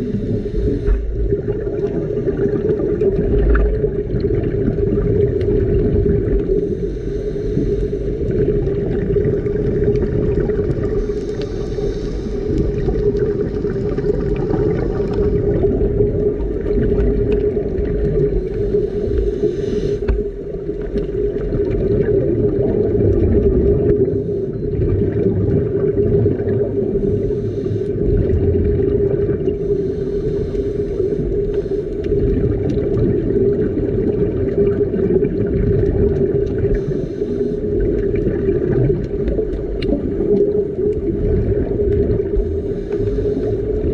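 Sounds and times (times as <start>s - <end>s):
faint hissing: 0.0s - 1.6s, 6.5s - 8.4s, 10.9s - 15.4s, 18.3s - 20.5s, 27.0s - 28.3s, 29.5s - 32.3s
boat engine droning underwater: 0.0s - 43.9s.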